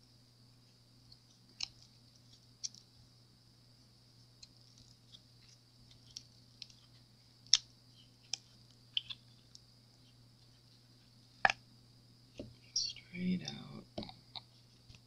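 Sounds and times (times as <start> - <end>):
faint steady hum: 0.0 - 15.0
silicone mold clicks and taps: 13.4 - 15.0.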